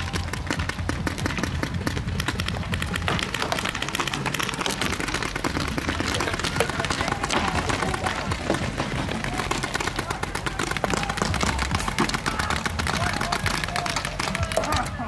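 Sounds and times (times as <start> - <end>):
paintball markers firing: 0.0 - 15.0.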